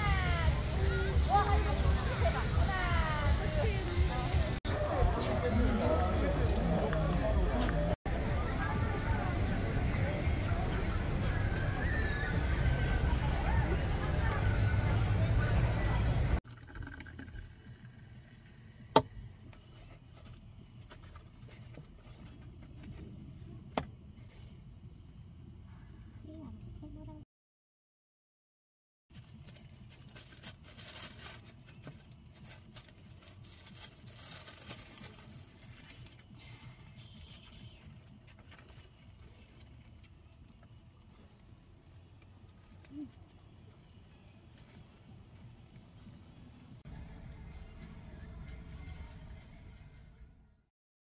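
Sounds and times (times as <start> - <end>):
soft drink pouring into glass: 16.4 - 18.6
plastic gloves and foam box rustling: 29.1 - 46.2.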